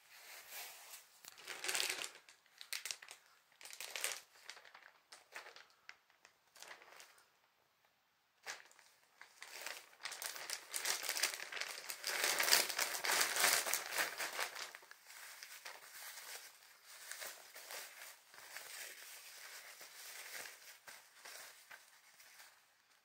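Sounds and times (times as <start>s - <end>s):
diaper layers rustling: 0.2s - 5.9s, 8.5s - 23.0s
plastic packaging crinkling: 0.6s - 7.4s, 8.4s - 23.0s.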